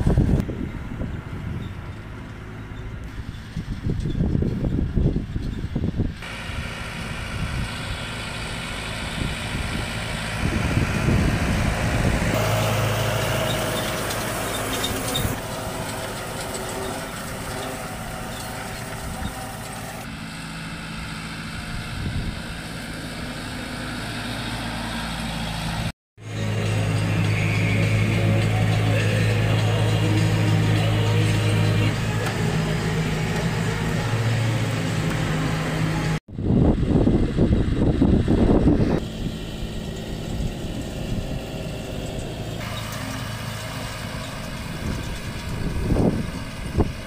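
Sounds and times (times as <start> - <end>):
wind buffeting microphone: 0.0 - 2.1, 2.9 - 8.1, 9.0 - 19.6, 21.6 - 22.6, 36.2 - 42.7, 44.1 - 47.0
tractor engine running: 0.0 - 47.0.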